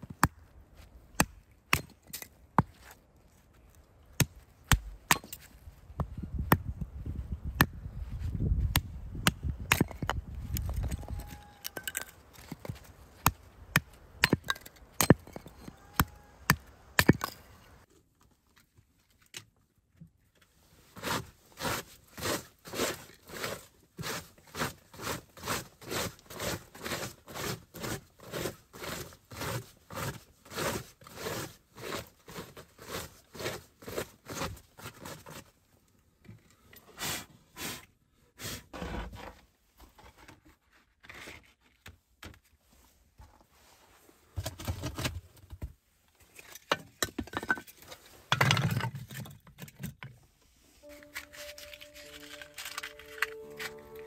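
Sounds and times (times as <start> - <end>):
chopping wood: 11.9 - 17.4.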